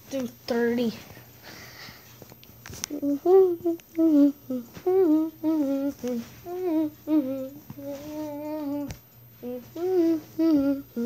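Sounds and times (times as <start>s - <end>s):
person humming a tune: 2.9s - 11.0s.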